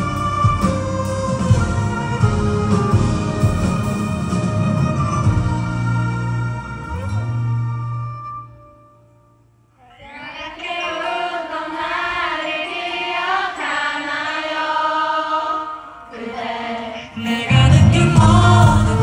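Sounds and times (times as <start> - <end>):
rock band chord: 0.0 - 8.7, 17.2 - 19.0
person singing unaccompanied: 9.8 - 19.0.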